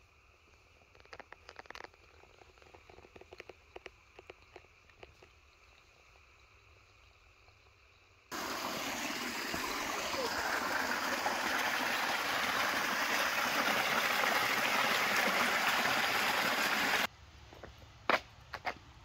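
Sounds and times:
small waterfall rushing: 0:08.3 - 0:17.1.

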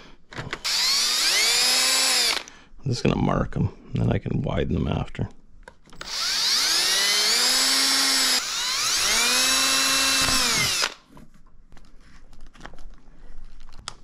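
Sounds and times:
power drill boring plastic: 0:00.6 - 0:02.5, 0:06.0 - 0:11.0.

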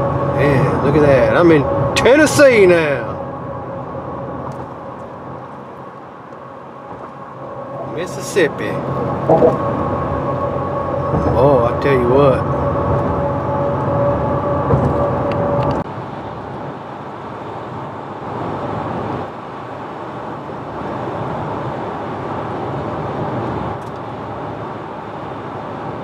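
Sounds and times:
steady hum: 0:00.0 - 0:16.8
road and tyre noise: 0:00.0 - 0:26.0.

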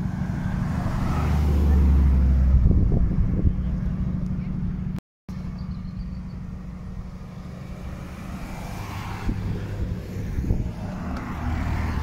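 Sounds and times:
car driving past: 0:00.0 - 0:02.8, 0:06.9 - 0:12.0
car engines droning: 0:00.0 - 0:12.0.

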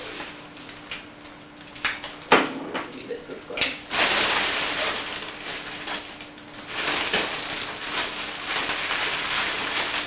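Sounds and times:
plastic bag rustling and crinkling: 0:03.8 - 0:10.0.

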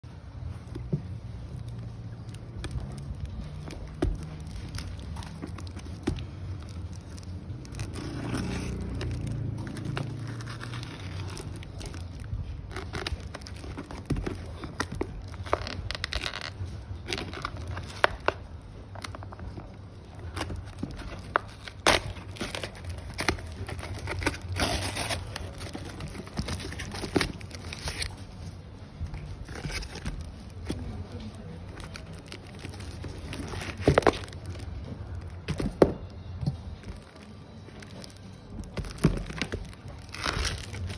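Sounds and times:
plastic crinkling: 0:00.1 - 0:40.9
packing tape ripping: 0:01.6 - 0:18.4, 0:20.0 - 0:28.3, 0:38.0 - 0:40.9
cardboard scraping: 0:02.4 - 0:18.4, 0:20.1 - 0:36.0.

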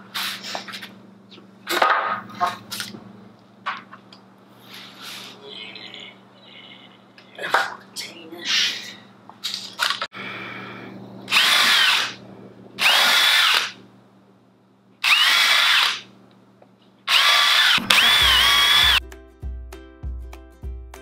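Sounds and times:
cordless drill whining: 0:11.3 - 0:12.2, 0:12.8 - 0:13.8, 0:15.0 - 0:16.0, 0:17.1 - 0:19.0.

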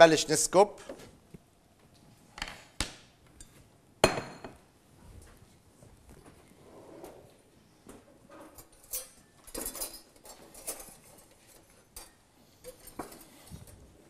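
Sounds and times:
steel pot clinking on grate: 0:08.6 - 0:13.7.

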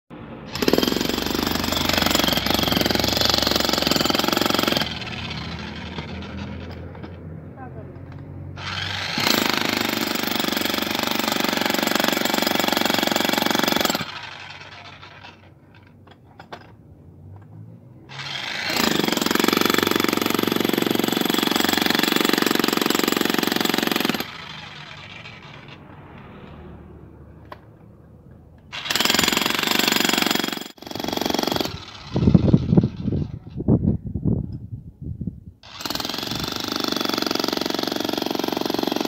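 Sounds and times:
demolition hammer chiselling concrete: 0:00.5 - 0:07.1, 0:08.6 - 0:15.5, 0:18.1 - 0:25.7, 0:28.7 - 0:33.2, 0:35.6 - 0:39.0.

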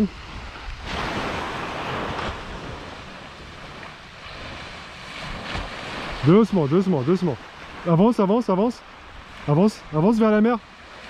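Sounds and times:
wind rumbling on microphone: 0:00.0 - 0:07.9
surf washing onto beach: 0:00.0 - 0:11.0.

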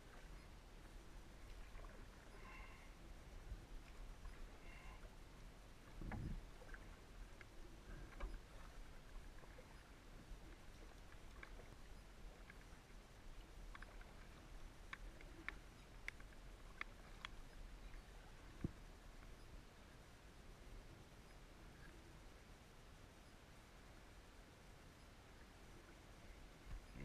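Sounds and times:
soft hiss: 0:00.0 - 0:27.0
paddle dripping water ticks: 0:05.8 - 0:19.4.

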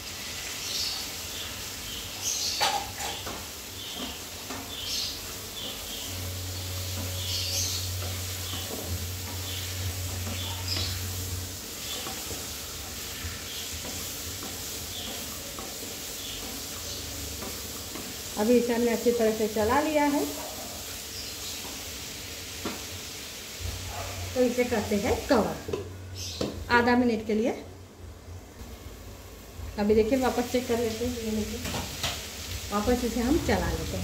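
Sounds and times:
food sizzling in oil: 0:00.0 - 0:27.4, 0:28.5 - 0:34.0
spatula scraping a pan: 0:00.6 - 0:19.5.

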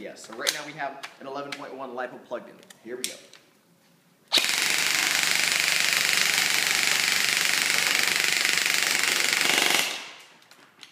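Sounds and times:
airsoft gun full-auto rattle: 0:04.4 - 0:10.2.

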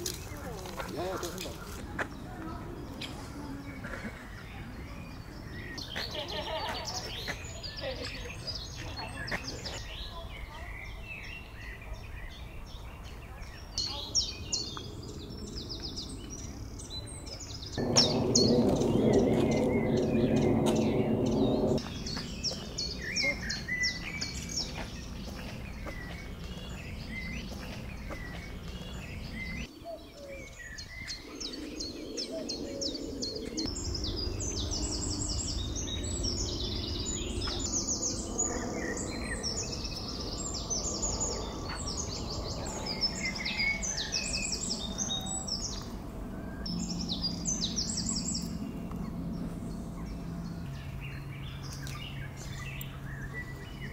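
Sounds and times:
songbirds chirping: 0:00.0 - 0:53.9
steady low hum: 0:14.7 - 0:29.7, 0:30.8 - 0:53.9.

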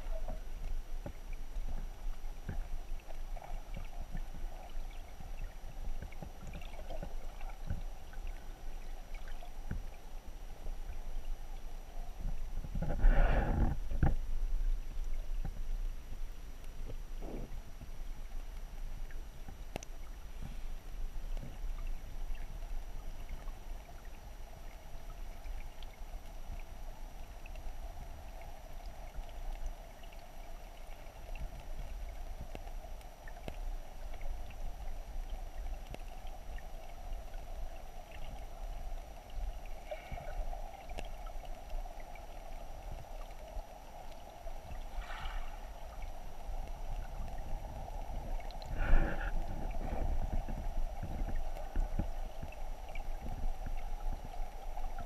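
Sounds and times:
underwater creek current rush: 0:00.0 - 0:55.0
faint clicks: 0:18.5 - 0:20.2, 0:27.4 - 0:48.7.

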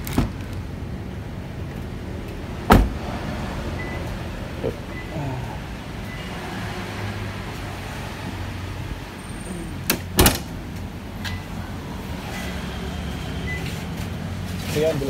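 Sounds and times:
tailgate thump: 0:02.7 - 0:03.0, 0:09.9 - 0:10.5.

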